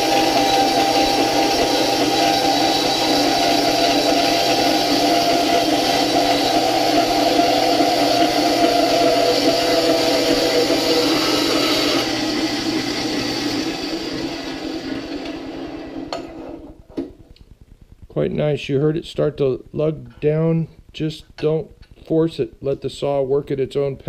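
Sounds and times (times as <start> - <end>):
bandsaw cutting metal tubing: 0.0 - 15.5.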